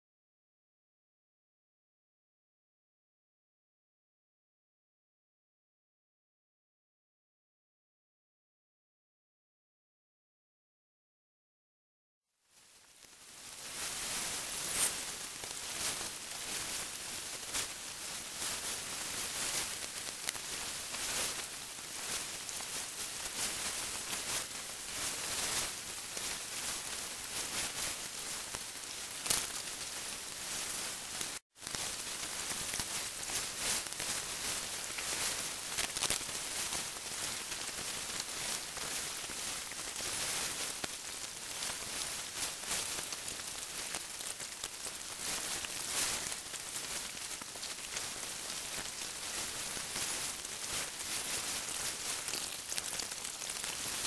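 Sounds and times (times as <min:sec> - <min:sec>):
steady hiss with crackling: 0:12.4 - 0:54.0.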